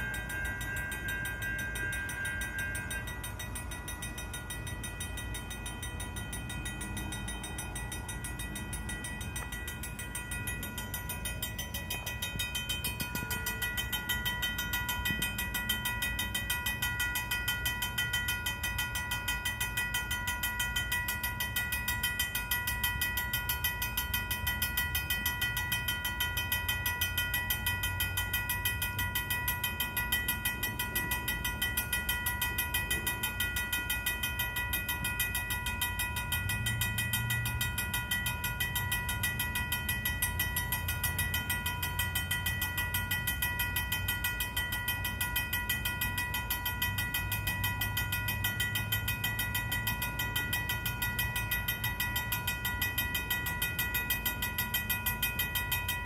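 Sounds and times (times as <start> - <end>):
railroad crossing bell ringing: 0.0 - 56.0.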